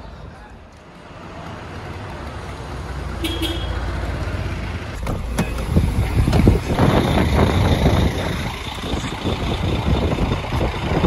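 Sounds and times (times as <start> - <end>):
wind buffeting microphone: 5.2 - 11.0.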